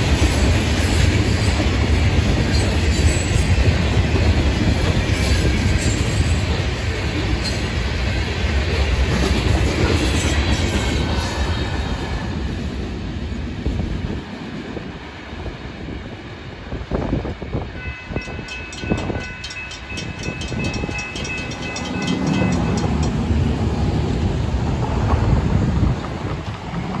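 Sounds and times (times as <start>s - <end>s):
freight train rumbling: 0.0s - 27.0s
crossing signal bell ringing: 17.8s - 23.6s.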